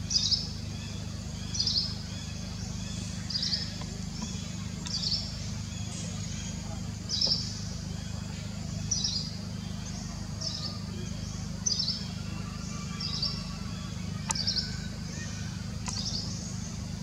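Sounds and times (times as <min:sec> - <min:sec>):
bird chirping: 0:00.0 - 0:17.0
sharp clicks: 0:15.8 - 0:16.1.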